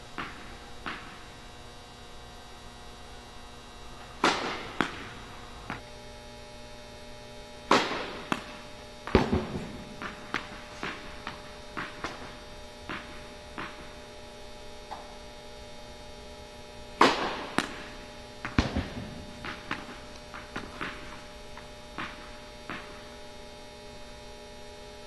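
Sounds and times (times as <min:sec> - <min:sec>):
steady electrical hum: 0:00.0 - 0:25.0
tennis ball bouncing: 0:00.2 - 0:01.3, 0:04.2 - 0:05.8, 0:07.9 - 0:13.9
racquet hitting tennis ball: 0:00.2 - 0:01.4, 0:04.0 - 0:05.8, 0:07.7 - 0:14.0, 0:17.0 - 0:21.3, 0:21.9 - 0:23.2.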